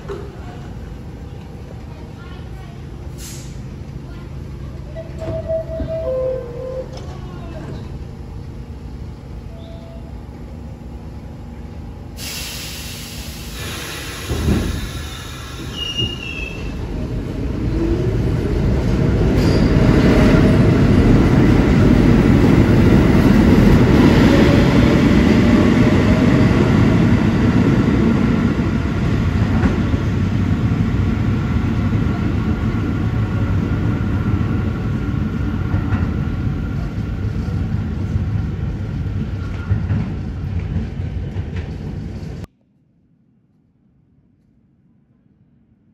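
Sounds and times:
subway train rumbling: 0:00.0 - 0:42.6
wheel squeal: 0:15.7 - 0:16.7.

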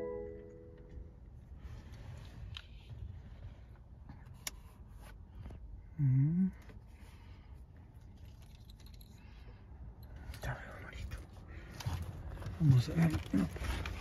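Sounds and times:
man humming: 0:06.0 - 0:06.6.

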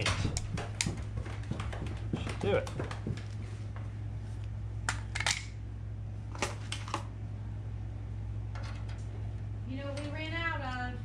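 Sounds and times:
hand tools clicking and tapping: 0:00.0 - 0:03.3
steady low hum: 0:00.0 - 0:11.0.

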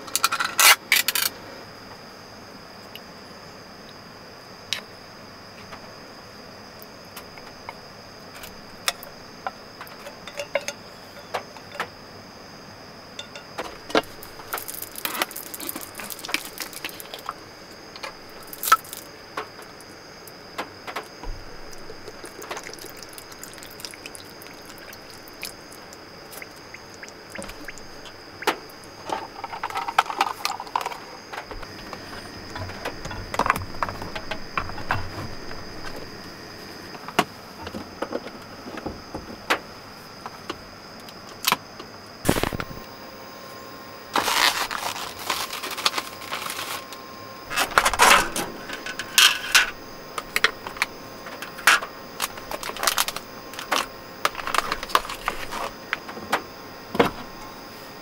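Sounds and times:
high insect trill: 0:00.0 - 0:58.0
water pouring from bottle: 0:21.8 - 0:28.1.

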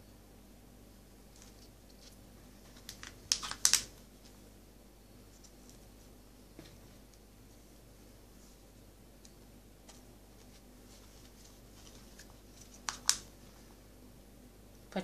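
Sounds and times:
plastic cup clicking and crackling: 0:02.8 - 0:03.9, 0:12.8 - 0:13.3.

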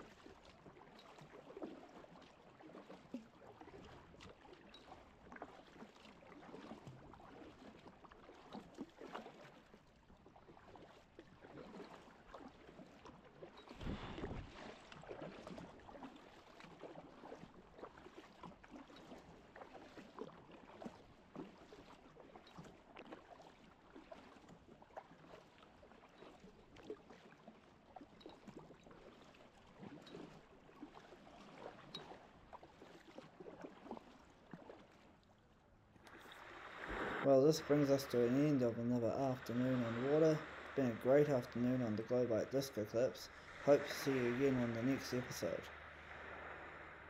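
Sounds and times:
paddle splashing in water: 0:00.0 - 0:47.0
water trickling along hull: 0:00.0 - 0:47.0.

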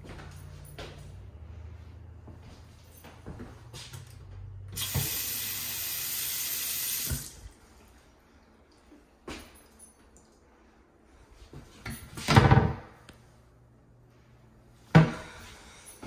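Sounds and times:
water running into sink: 0:04.8 - 0:07.6.

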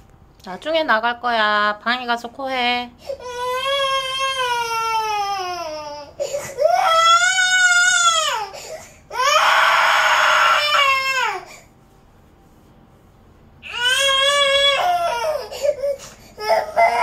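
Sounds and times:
toddler crying: 0:03.2 - 0:08.5, 0:13.7 - 0:17.0.

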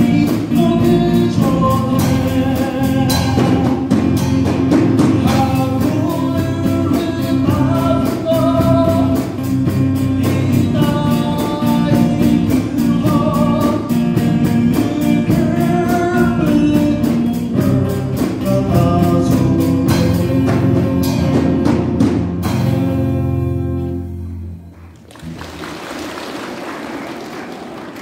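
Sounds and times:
man singing: 0:00.0 - 0:21.8
drum kit with cymbal beat: 0:00.0 - 0:23.4
acoustic guitar: 0:00.0 - 0:25.4
bass guitar: 0:00.0 - 0:25.7.

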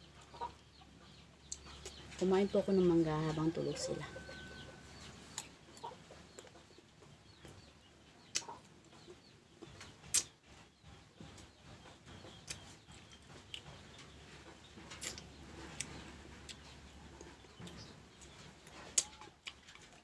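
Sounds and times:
chickens clucking: 0:00.0 - 0:20.0
crunching and chewing mango: 0:04.2 - 0:10.6, 0:11.2 - 0:20.0.

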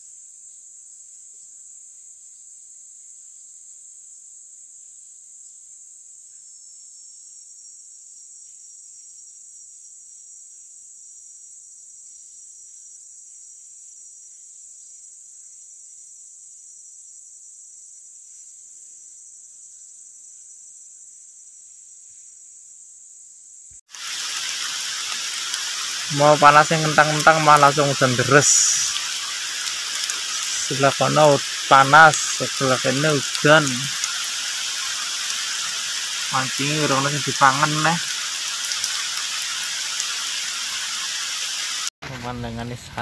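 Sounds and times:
insects droning: 0:00.0 - 0:43.0
thin steady tone: 0:24.0 - 0:41.7.

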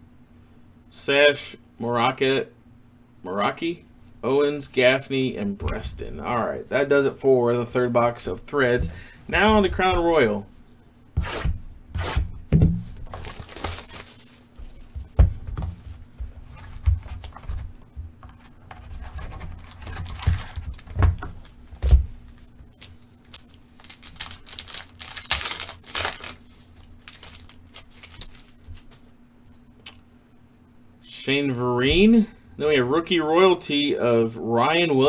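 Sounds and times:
cardboard knocks and taps: 0:08.8 - 0:10.2, 0:12.2 - 0:13.2, 0:14.6 - 0:19.4
foil wrapper crinkling and tearing: 0:13.0 - 0:14.5, 0:19.5 - 0:20.9, 0:22.8 - 0:28.9.

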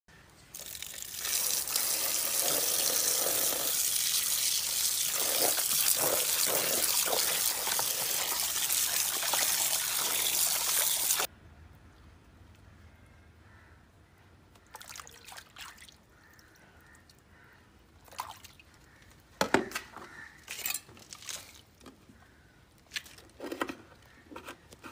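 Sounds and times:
water pouring into plastic basin: 0:00.5 - 0:11.3.

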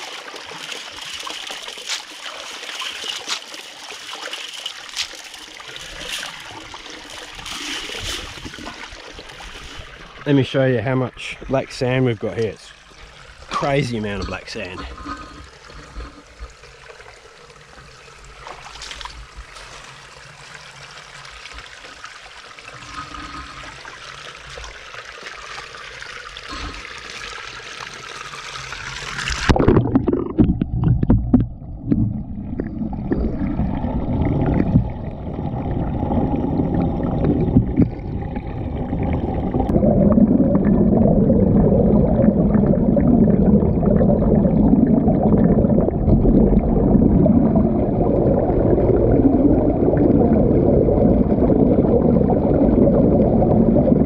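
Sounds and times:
water swirling and splashing: 0:00.0 - 0:54.0
underwater rumble of churning water: 0:28.4 - 0:54.0.

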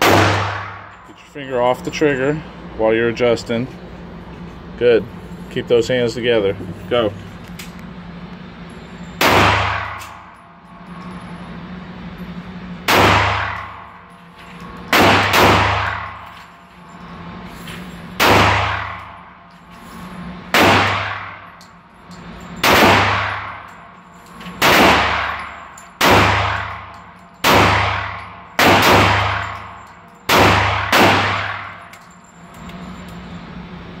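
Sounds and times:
pistol shots echoing indoors: 0:00.0 - 0:01.0, 0:09.2 - 0:10.2, 0:12.9 - 0:13.9, 0:14.9 - 0:16.3, 0:18.2 - 0:19.2, 0:20.5 - 0:21.4, 0:22.6 - 0:23.7, 0:24.6 - 0:31.8.

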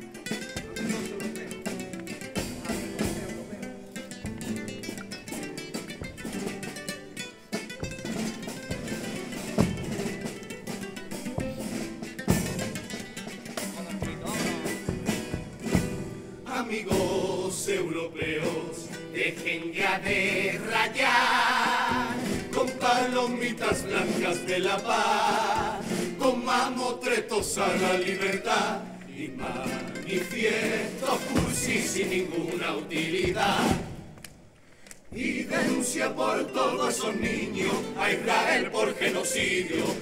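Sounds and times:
guitar accompaniment: 0:00.0 - 0:40.0
group of voices singing: 0:16.3 - 0:34.2, 0:35.1 - 0:40.0.

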